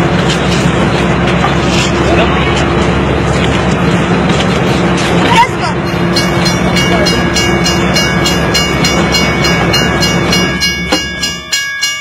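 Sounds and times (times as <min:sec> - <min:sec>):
rhythmic wheel clatter: 0:00.0 - 0:12.0
train rumble: 0:00.0 - 0:12.0
ringing tones: 0:05.8 - 0:12.0.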